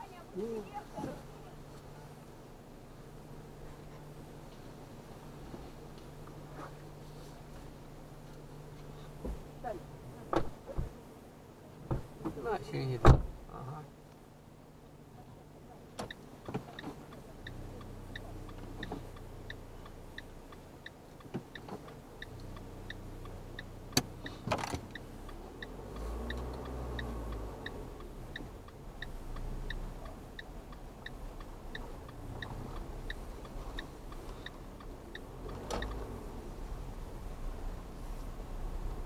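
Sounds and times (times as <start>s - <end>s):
car engine idling: 0.0s - 39.0s
car indicator ticking: 15.9s - 37.7s.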